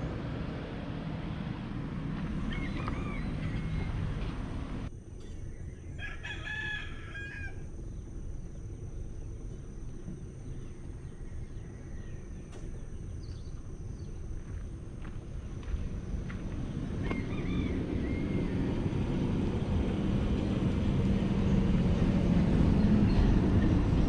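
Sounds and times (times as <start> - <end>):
low outdoor rumble: 0.0 - 24.0
rooster crowing: 2.3 - 4.4, 6.0 - 7.7, 17.0 - 18.8.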